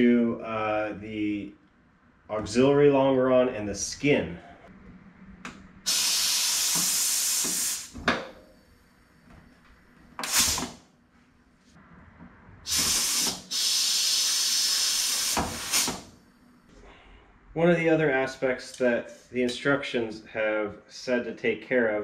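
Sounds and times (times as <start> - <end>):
compressed air hissing: 5.9 - 8.0, 10.2 - 10.8, 12.7 - 16.2.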